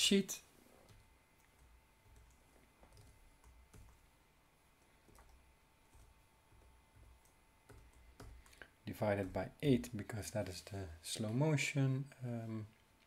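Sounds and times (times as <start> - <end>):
computer keyboard keystrokes: 0.8 - 4.0, 5.0 - 8.6.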